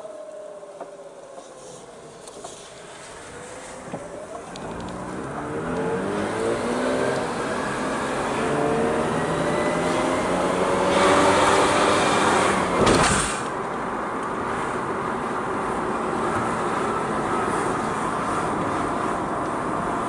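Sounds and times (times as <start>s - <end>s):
rotary engine revving: 3.2s - 12.8s.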